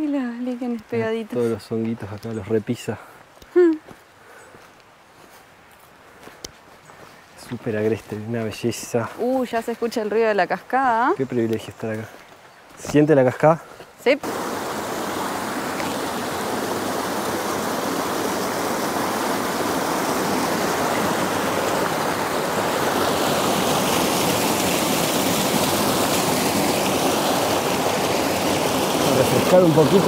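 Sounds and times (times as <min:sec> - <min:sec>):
creek water rushing over rocks: 0:14.1 - 0:30.0.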